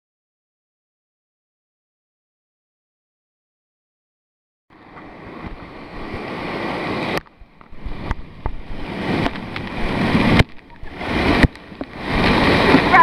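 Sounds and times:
rushing splashing water: 4.7 - 13.0.

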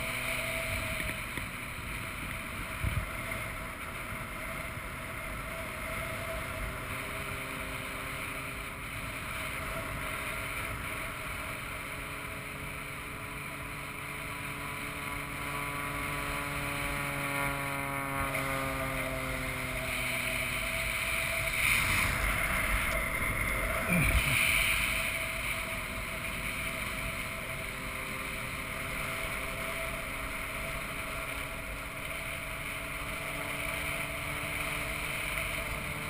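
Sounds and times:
propeller airplane engine droning: 0.0 - 36.0
wind rushing over microphone: 19.4 - 28.1.

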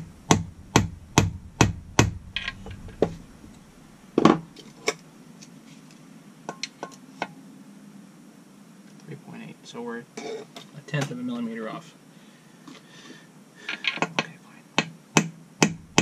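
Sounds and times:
loud knock: 0.0 - 3.2.

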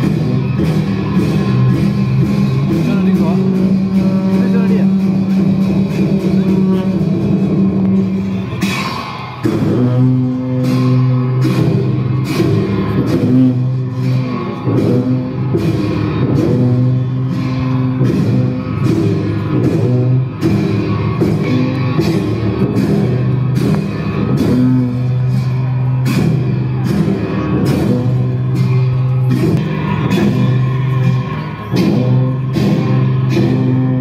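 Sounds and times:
long horns droning: 0.0 - 8.8, 9.4 - 34.0
cymbals crashing: 0.0 - 34.0.

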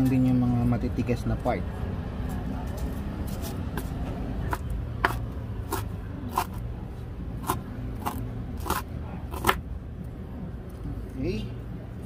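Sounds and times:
knife chopping on wooden board: 3.7 - 6.6, 7.4 - 9.6.

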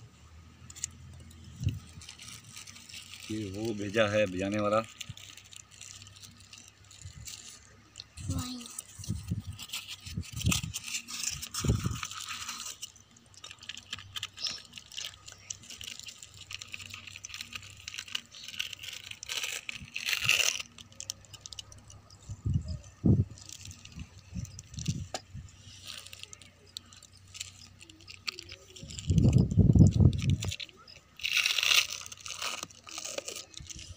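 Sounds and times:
small clicks and rattles: 0.6 - 33.9
plastic packets rustling: 0.7 - 33.9.

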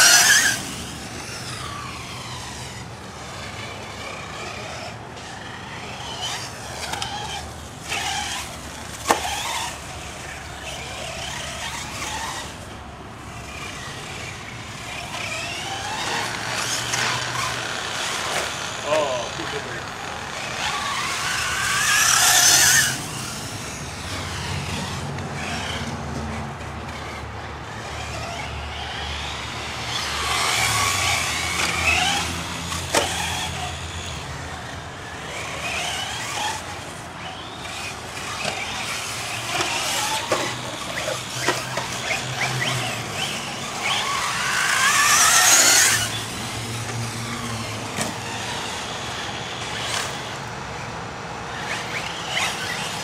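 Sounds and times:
toy car motors whining: 0.0 - 53.0.

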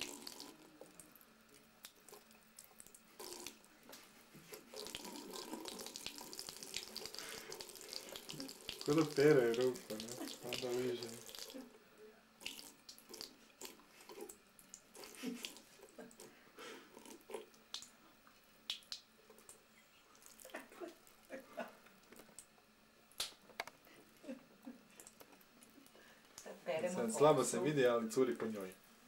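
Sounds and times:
tap water splashing and dripping: 4.8 - 11.6.

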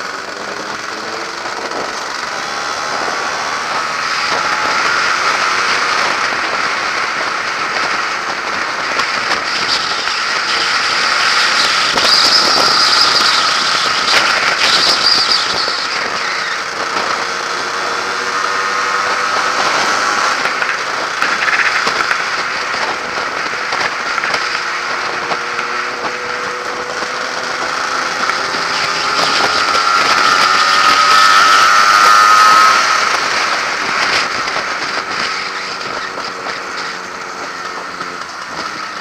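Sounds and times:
two-stroke motorcycle engine: 0.0 - 39.0
wind and road noise: 0.0 - 39.0.

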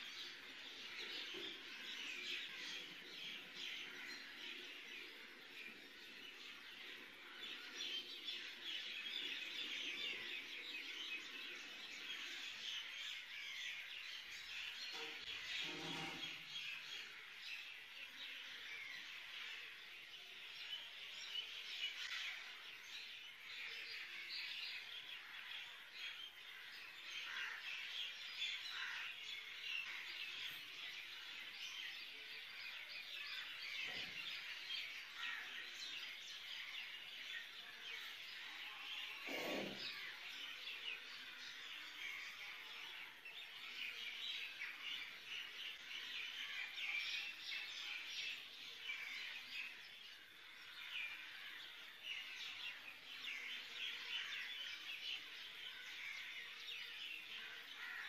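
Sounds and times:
small birds chirping: 0.0 - 58.0.

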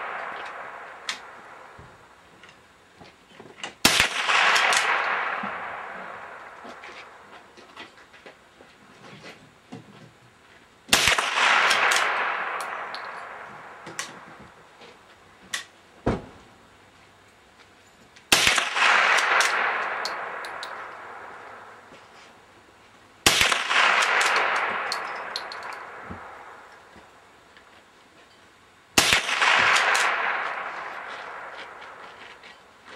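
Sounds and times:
rifle shots: 0.0 - 1.8, 3.8 - 7.3, 10.9 - 14.4, 18.3 - 21.9, 23.2 - 26.9, 29.0 - 32.4.

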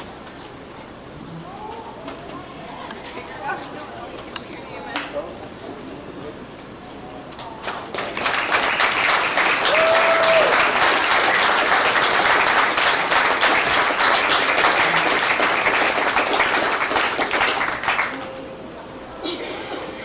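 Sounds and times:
crowd applauding: 7.4 - 18.5.

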